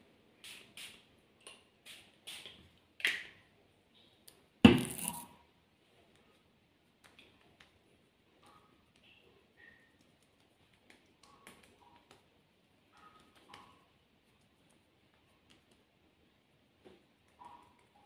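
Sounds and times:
spray bottle misting: 0.4s - 1.1s, 1.8s - 2.6s, 4.8s - 5.2s
sharp thump: 4.7s - 5.2s.

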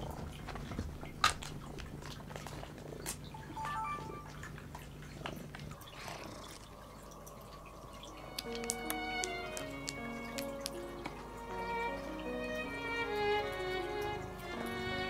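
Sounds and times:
cat purring: 5.2s - 8.7s.

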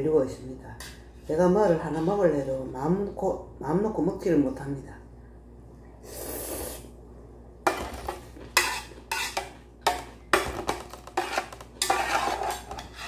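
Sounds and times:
slurping noodles: 6.0s - 6.9s
metal chopsticks scraping a pot: 8.6s - 9.5s, 11.1s - 13.0s.

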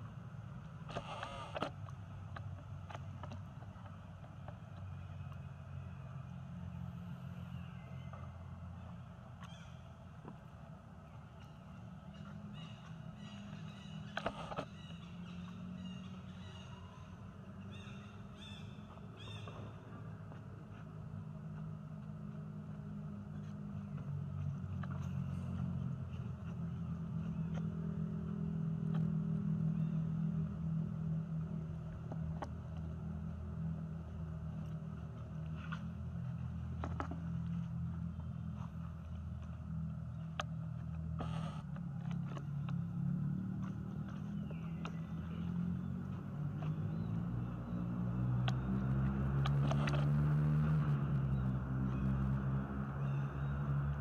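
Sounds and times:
low steady hum: 0.0s - 54.0s.

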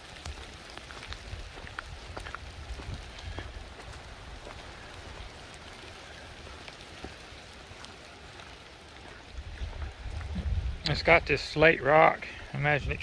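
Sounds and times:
light rain falling: 0.0s - 13.0s
rain drops ticking: 0.0s - 13.0s.

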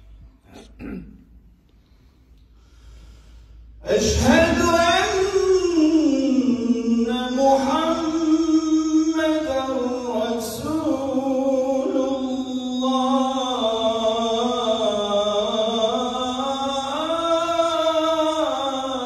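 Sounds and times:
man singing call to prayer: 3.8s - 19.0s.

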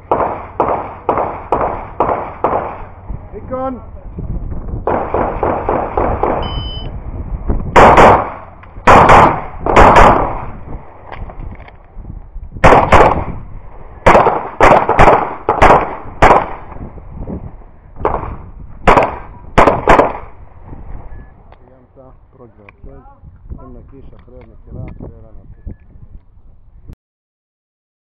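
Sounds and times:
pistol shots: 0.0s - 3.0s, 4.9s - 6.5s, 7.8s - 10.6s, 12.6s - 13.4s, 14.0s - 16.8s, 18.0s - 20.4s
shot timer beep: 6.4s - 6.9s.

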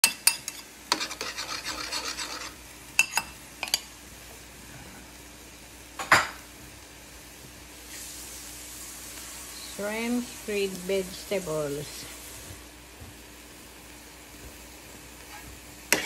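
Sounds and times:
spatula scraping a wok: 0.0s - 3.3s, 15.2s - 16.0s.

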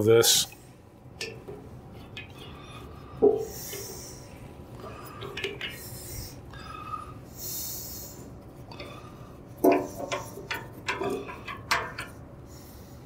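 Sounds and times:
sharp metal knocks and rattles: 1.2s - 2.5s, 9.6s - 12.2s.

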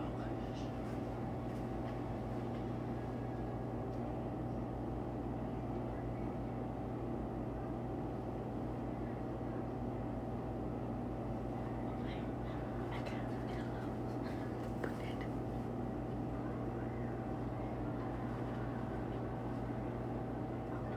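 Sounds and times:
steady low hum with tones: 0.0s - 20.9s.

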